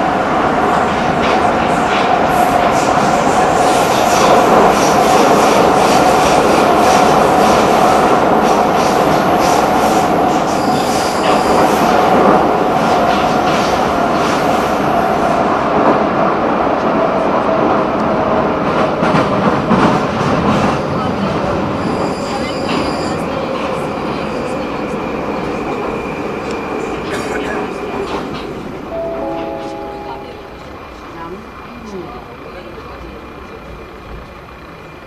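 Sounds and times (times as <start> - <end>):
metro train wheels rushing on rail: 0.0 - 35.0
high wheel squeal: 21.8 - 23.2.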